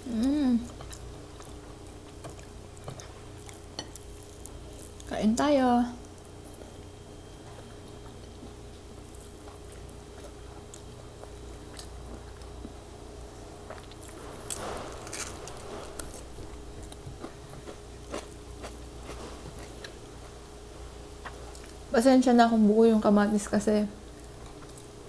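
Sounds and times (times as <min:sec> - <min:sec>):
chewing: 0:00.2 - 0:05.1, 0:06.4 - 0:20.4, 0:21.0 - 0:21.9, 0:24.1 - 0:25.0.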